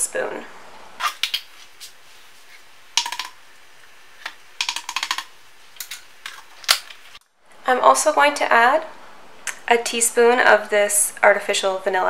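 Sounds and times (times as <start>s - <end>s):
spoon tapping plastic cup: 3.0s - 3.4s, 4.2s - 6.0s.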